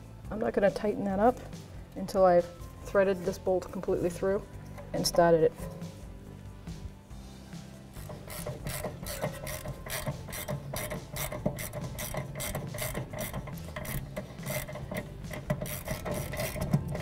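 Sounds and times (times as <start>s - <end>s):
ratcheting wrench clicking: 8.0s - 17.0s.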